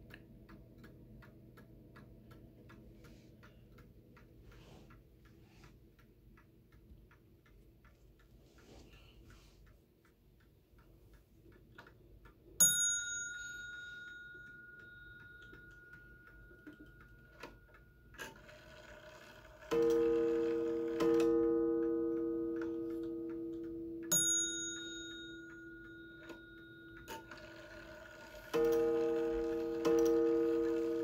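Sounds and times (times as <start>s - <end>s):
clock ticking and clicks: 0.0s - 31.0s
high bell-like clock ding: 12.6s - 31.0s
low clock gong strikes: 19.7s - 24.1s, 28.4s - 31.0s.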